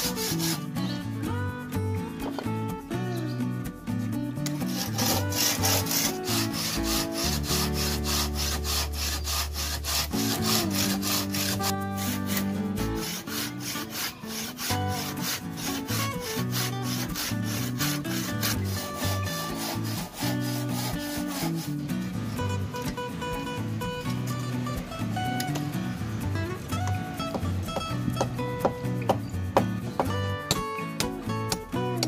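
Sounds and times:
hand saw cutting concrete block: 0.0 - 1.0, 4.4 - 22.9
background music: 0.0 - 32.0.

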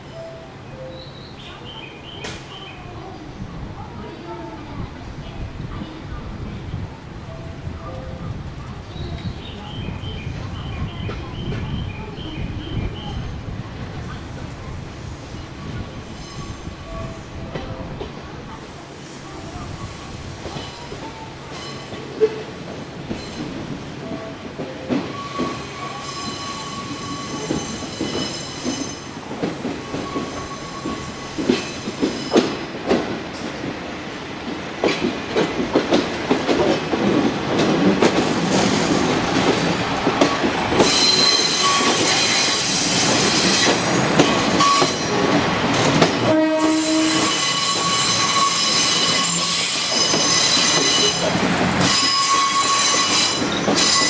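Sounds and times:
train wheels clicking on rail joints: 20.4 - 54.0
high wheel squeal: 25.1 - 29.1, 40.8 - 43.8, 46.6 - 54.0.

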